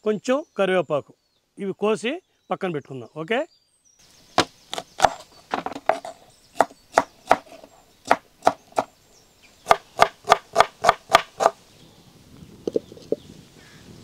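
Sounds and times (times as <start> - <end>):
knife chopping on wooden board: 4.4 - 8.9, 9.7 - 11.6.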